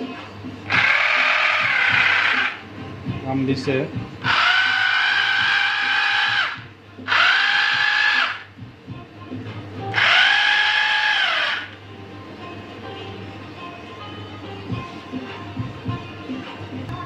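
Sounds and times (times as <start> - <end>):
rotary hammer drill motor whine: 0.7 - 2.6, 4.2 - 8.5, 9.9 - 11.7.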